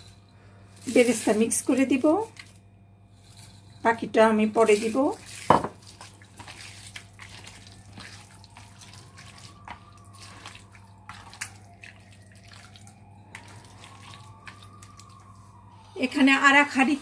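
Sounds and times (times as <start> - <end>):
wet squelches of mixing meat: 4.1 - 17.0.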